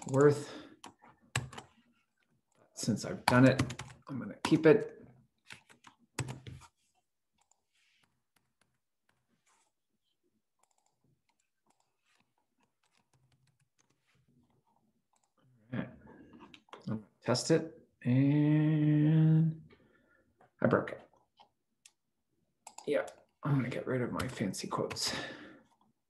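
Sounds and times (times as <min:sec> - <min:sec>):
keyboard typing: 0:00.0 - 0:01.8, 0:03.2 - 0:04.7, 0:05.4 - 0:09.7, 0:10.6 - 0:15.4, 0:22.6 - 0:23.2, 0:24.2 - 0:25.0.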